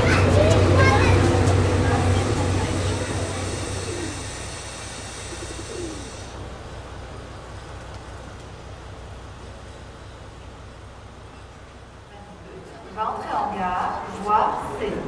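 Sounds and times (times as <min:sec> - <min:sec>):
pigeon cooing: 0:02.9 - 0:06.3.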